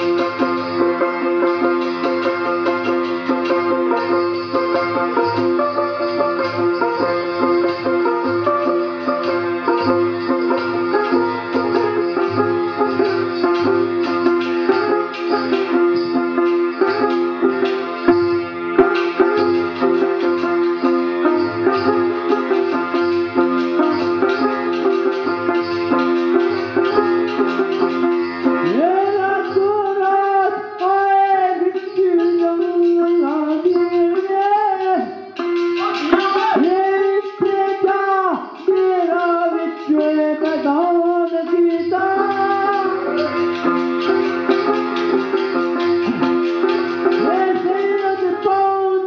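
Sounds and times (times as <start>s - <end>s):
plucked string instrument: 0.0s - 49.0s
person singing: 28.5s - 49.0s.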